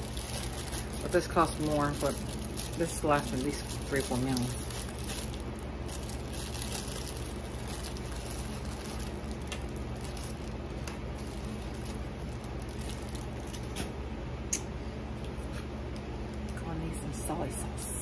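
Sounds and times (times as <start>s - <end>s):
packaging rustling: 0.0s - 13.9s
steady low hum: 0.0s - 18.0s.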